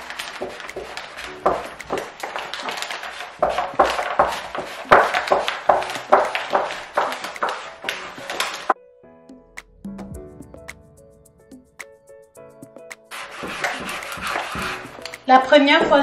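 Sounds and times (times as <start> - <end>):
backing paper peeling: 0.0 - 8.8, 13.1 - 16.0
squeegee scraping vinyl film: 0.0 - 8.8, 13.1 - 16.0.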